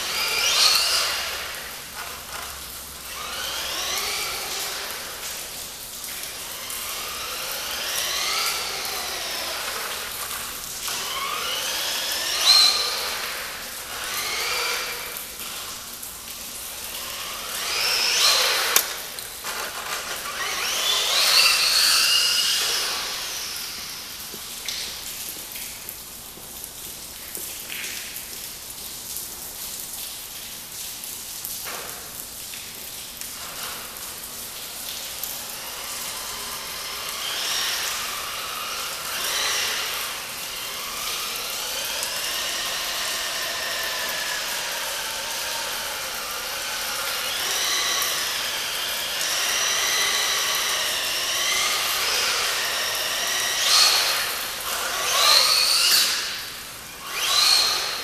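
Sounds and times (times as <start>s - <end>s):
electric motor whining: 0.0s - 15.8s, 16.4s - 24.8s, 35.0s - 58.0s.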